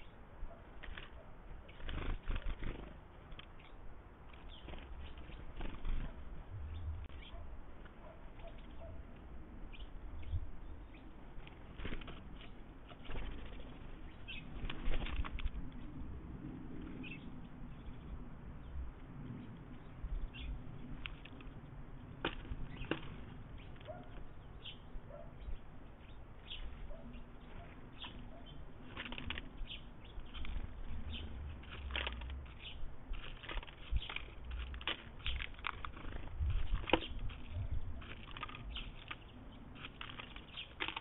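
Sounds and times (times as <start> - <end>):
bird pecking and rattling seeds: 0.7 - 6.3, 11.2 - 16.1, 20.8 - 24.5, 27.5 - 41.0
low rumble: 6.2 - 7.2.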